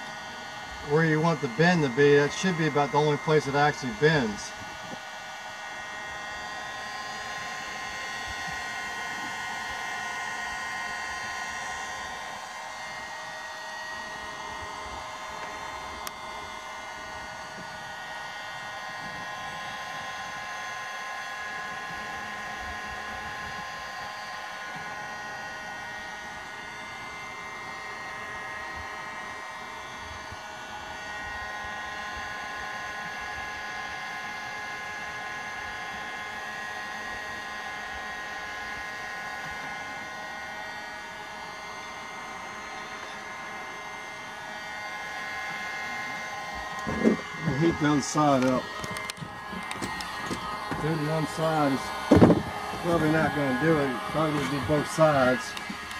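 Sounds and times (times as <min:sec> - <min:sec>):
heat gun fan whining: 0:00.0 - 0:55.9.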